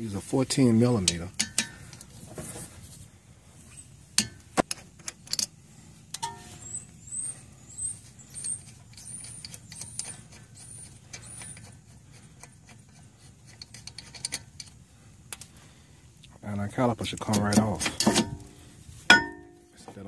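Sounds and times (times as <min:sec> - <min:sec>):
short high squeaks: 0:03.6 - 0:04.0, 0:06.2 - 0:12.0.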